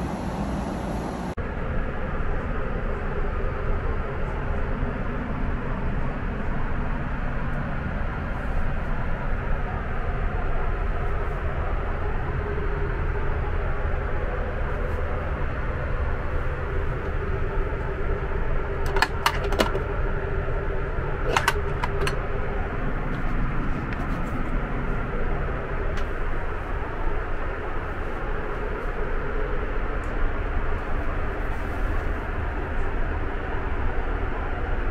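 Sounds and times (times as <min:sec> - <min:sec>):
airplane cabin engine and airflow rush: 0:00.0 - 0:34.9
faint hum: 0:00.0 - 0:34.9.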